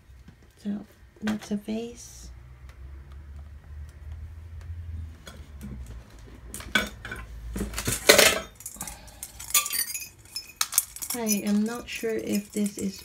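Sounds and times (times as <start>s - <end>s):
items clattering: 5.3s - 13.0s
household items clinking: 6.6s - 13.0s.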